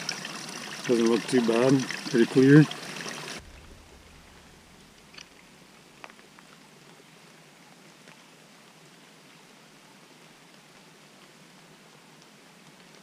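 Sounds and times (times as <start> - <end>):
small stream trickling: 0.0 - 8.4.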